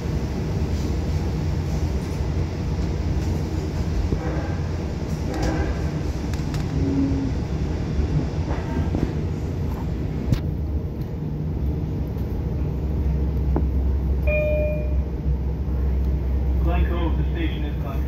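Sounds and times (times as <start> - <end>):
train rumbling: 0.0 - 18.0
short tone: 14.2 - 15.1.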